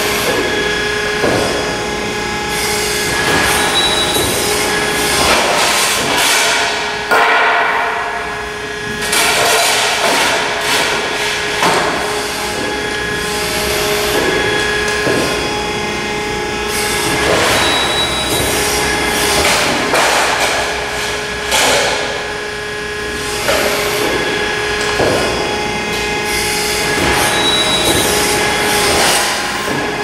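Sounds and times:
machine pump hum: 0.0 - 30.0
sharp metal bang: 7.1 - 8.4.

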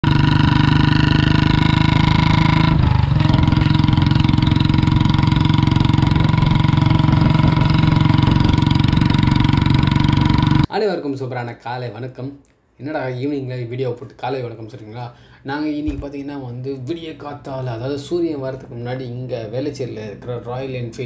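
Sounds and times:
motorcycle exhaust beating: 0.0 - 10.7.

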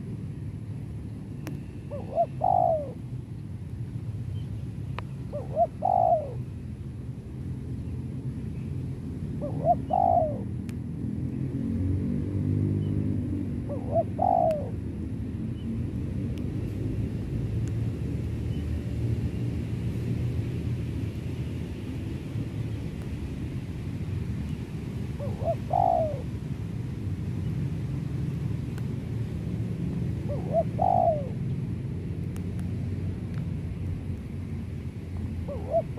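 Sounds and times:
steady low rumble: 0.0 - 35.9
dove cooing: 1.9 - 3.0, 5.3 - 6.5, 9.4 - 10.6, 13.6 - 14.8, 25.2 - 26.3, 30.2 - 31.4, 35.4 - 35.9.

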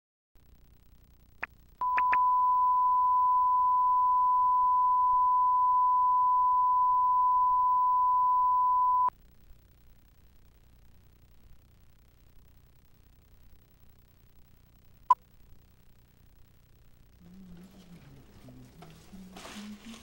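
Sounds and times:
faint tape hiss: 0.4 - 20.0
clicks: 1.4 - 2.3
steady reference tone beep: 1.8 - 9.1.

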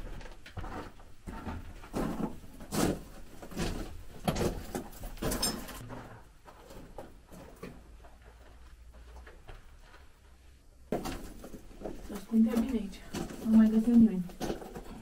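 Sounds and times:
footsteps on gravelly rock: 10.9 - 15.0.

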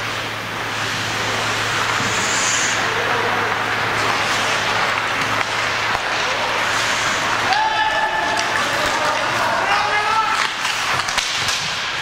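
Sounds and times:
low steady hum: 0.0 - 12.0
skates on ice: 0.8 - 12.0
crowd murmur: 1.6 - 11.0.

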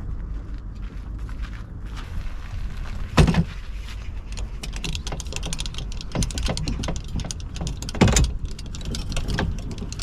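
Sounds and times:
jack crank metallic clicks: 4.3 - 10.0.

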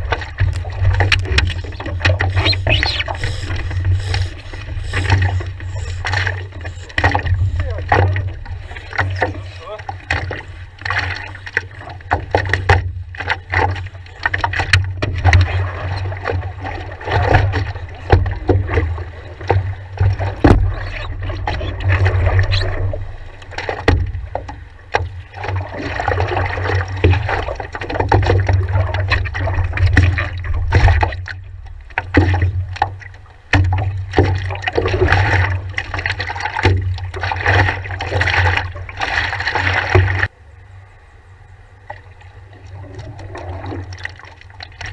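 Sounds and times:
steady low rumble: 0.0 - 15.4, 28.6 - 44.9
water splashing against paddleboard: 0.0 - 40.3, 41.8 - 44.9
paddle strokes: 0.0 - 44.9.

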